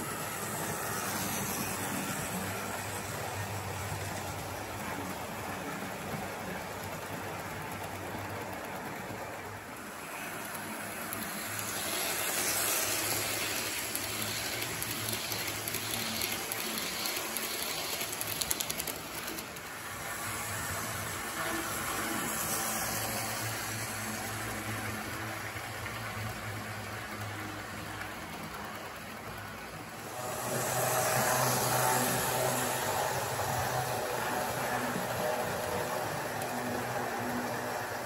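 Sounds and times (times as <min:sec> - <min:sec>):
model train wheels clicking: 0:00.0 - 0:38.0.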